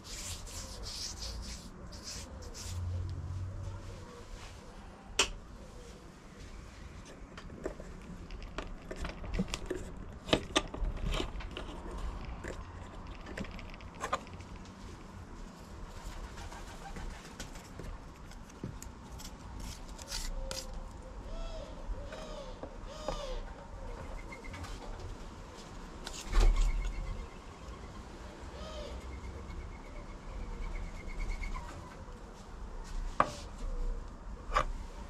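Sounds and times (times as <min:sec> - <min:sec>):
pigeon cooing: 0:20.4 - 0:24.7.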